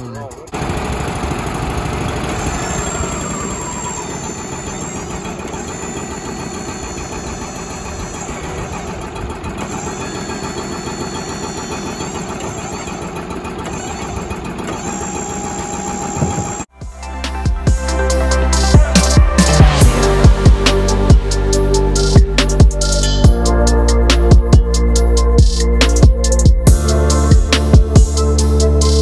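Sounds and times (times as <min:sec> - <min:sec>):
sawmill engine running: 0:00.4 - 0:16.7
thin high whine: 0:02.3 - 0:16.7.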